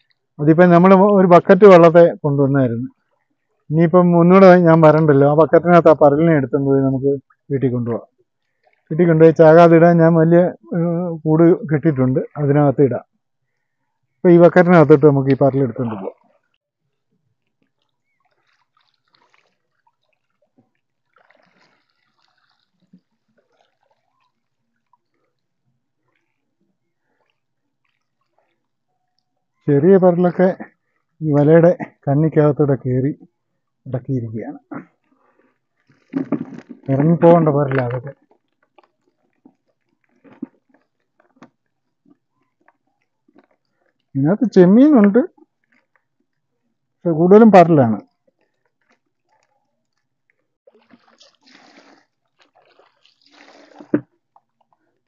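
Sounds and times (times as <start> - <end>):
water trickling and sloshing: 2.9 - 3.7, 7.2 - 10.1, 11.9 - 29.7, 34.8 - 55.0.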